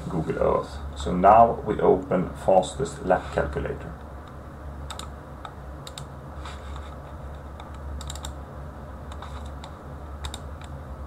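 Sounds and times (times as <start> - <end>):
steady low hum: 0.0 - 11.0
computer mouse and keys clicking: 4.2 - 8.4, 9.1 - 10.8.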